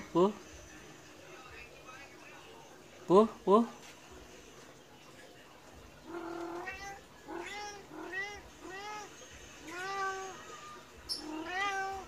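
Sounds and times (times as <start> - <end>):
cat meowing: 6.1 - 12.0.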